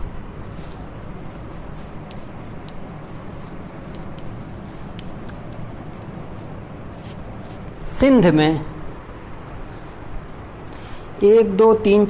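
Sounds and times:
low room hum: 0.0 - 12.0
scratchy writing strokes: 0.4 - 7.8.

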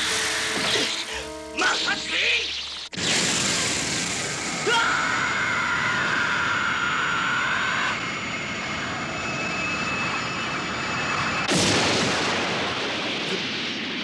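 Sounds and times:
whirling vortex rushing whine: 0.0 - 11.5
sudden loud blast: 11.4 - 13.8.

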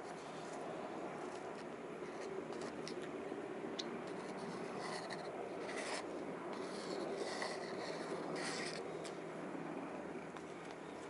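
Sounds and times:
low background hum: 0.0 - 11.0
scratching and rubbing on wood: 1.2 - 3.1, 4.0 - 9.2.

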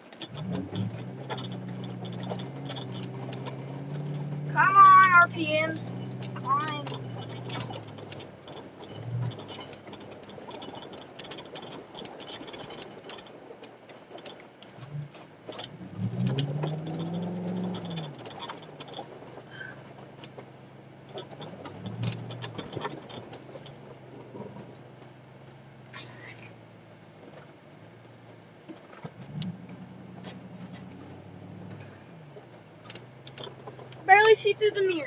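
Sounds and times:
truck engine revving: 0.0 - 12.6, 14.2 - 35.0
sharp clicks and rattles: 0.0 - 35.0.

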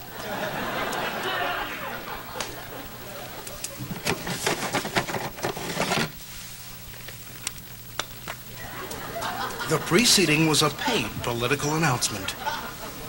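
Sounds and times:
steady low hum: 0.0 - 13.0
log fire crackling and popping: 6.1 - 11.6.

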